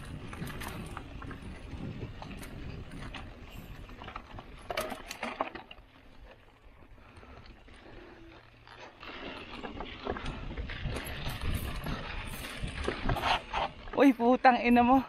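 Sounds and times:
bike clicking and rattling: 0:00.0 - 0:15.0
bike tyres rumbling on dirt: 0:00.0 - 0:15.0
bike clunking over rock step: 0:00.3 - 0:06.5.

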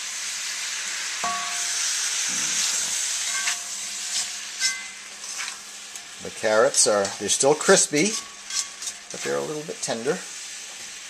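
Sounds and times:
stir-fry sizzling in a wok: 0:00.0 - 0:11.0
utensil clinking against wok: 0:01.2 - 0:01.8, 0:03.2 - 0:09.4.

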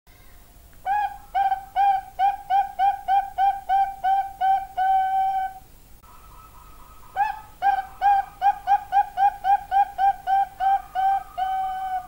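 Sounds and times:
dove cooing: 0:00.8 - 0:12.0.

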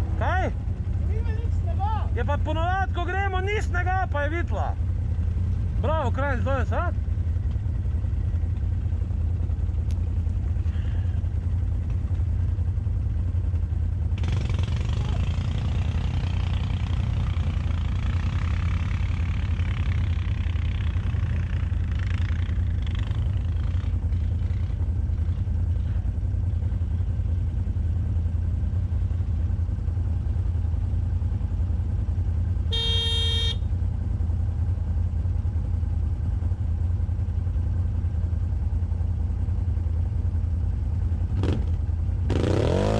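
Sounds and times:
atv engines idling: 0:00.0 - 0:42.9
horn toot: 0:32.7 - 0:33.7.

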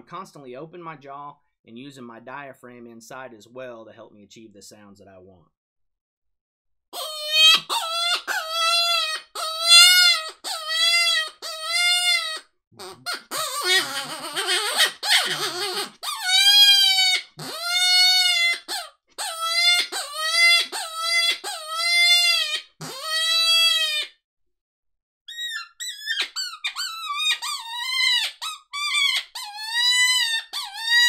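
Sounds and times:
raspy squalling call: 0:07.0 - 0:24.0
predator call distress cries: 0:07.0 - 0:24.1.

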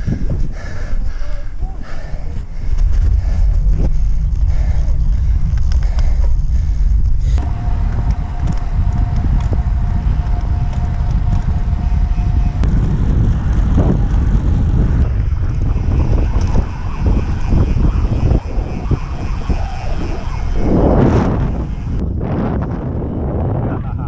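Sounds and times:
wind buffeting microphone: 0:00.0 - 0:24.0
thin steady whine: 0:04.2 - 0:22.2.

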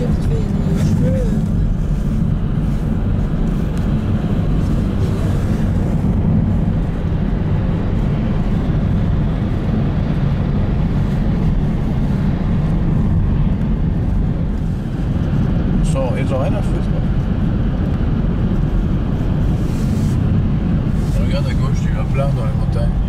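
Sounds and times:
car road and engine rumble: 0:00.0 - 0:23.0.

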